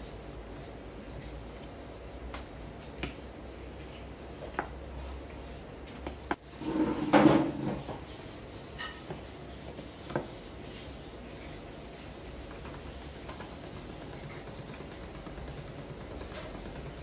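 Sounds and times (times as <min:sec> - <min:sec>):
rolling pin working dough: 0:00.0 - 0:17.0.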